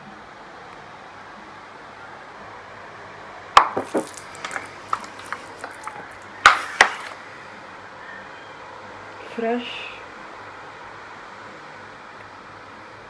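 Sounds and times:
water splashing on skin: 0:03.8 - 0:07.0.

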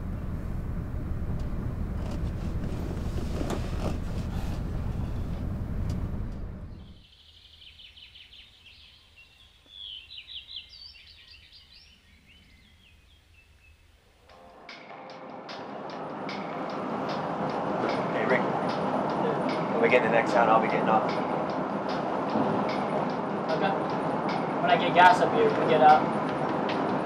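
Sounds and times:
car engine and road rumble: 0:00.0 - 0:07.0, 0:15.6 - 0:27.0
birds chirping: 0:06.6 - 0:14.1.

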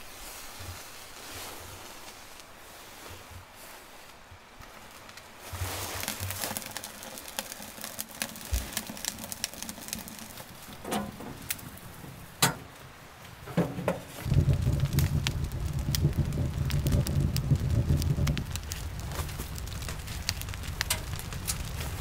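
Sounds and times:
wood fire crackling and popping: 0:04.6 - 0:22.0
stove glass door clacking shut: 0:10.8 - 0:11.5.

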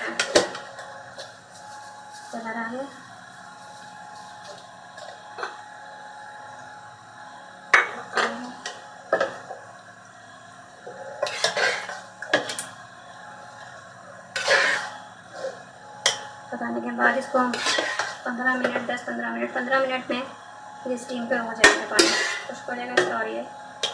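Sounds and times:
faint steady hum: 0:00.0 - 0:23.9
spoon scraping metal pot: 0:11.2 - 0:12.7, 0:14.3 - 0:15.6, 0:17.4 - 0:18.2, 0:21.7 - 0:22.5.

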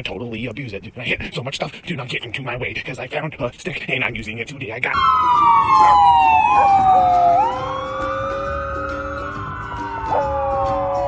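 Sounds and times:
dog howling: 0:05.0 - 0:11.0
siren wailing: 0:05.0 - 0:11.0.

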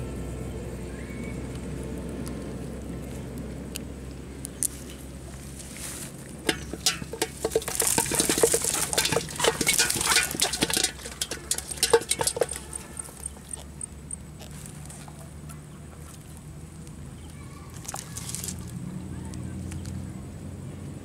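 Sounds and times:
hands rustling net: 0:04.7 - 0:13.8, 0:17.7 - 0:18.7
fish flapping against a net: 0:05.5 - 0:16.3, 0:17.7 - 0:18.8.

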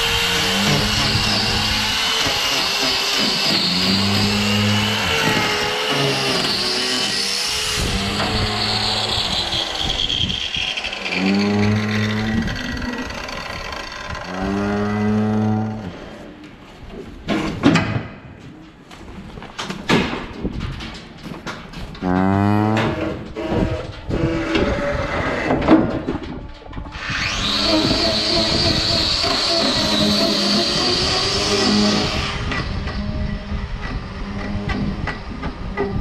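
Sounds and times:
steady mechanical whine: 0:00.0 - 0:14.7
cow mooing: 0:11.1 - 0:13.2, 0:14.3 - 0:16.0, 0:22.0 - 0:25.0
knocks and clatter in metal chute: 0:17.2 - 0:26.9.

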